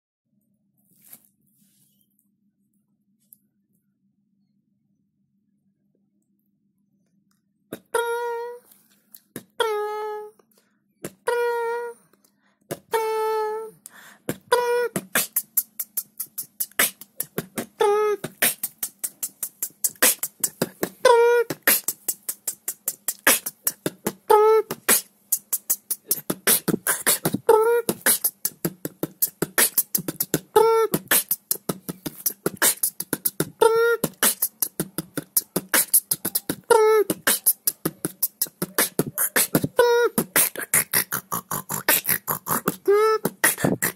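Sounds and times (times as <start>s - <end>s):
beatboxing: 7.7s - 8.6s, 9.3s - 10.2s, 11.0s - 11.9s, 12.7s - 13.6s, 14.2s - 43.9s
hummed notes: 12.9s - 43.9s.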